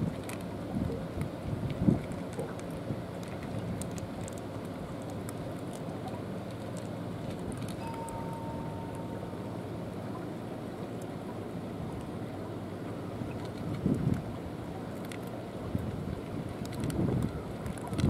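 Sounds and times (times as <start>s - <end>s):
wind noise on microphone: 0.0s - 2.2s, 13.6s - 14.3s, 15.7s - 18.0s
low outdoor rumble: 0.0s - 18.0s.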